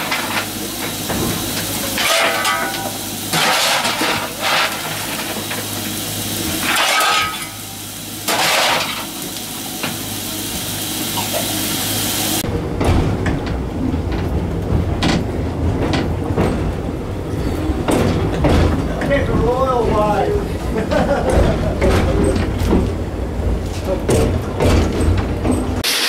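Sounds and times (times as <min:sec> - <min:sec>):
steam hissing: 0:00.0 - 0:12.4, 0:25.8 - 0:26.0
shovel scraping coal: 0:01.9 - 0:05.4, 0:06.6 - 0:07.6, 0:08.3 - 0:09.1.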